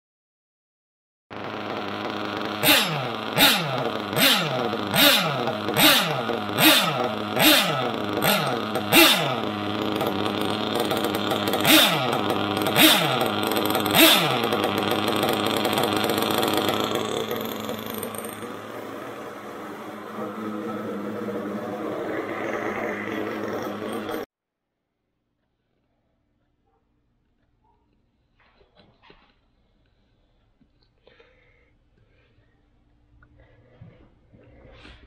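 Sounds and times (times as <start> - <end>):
small engine revving: 1.3 - 24.3.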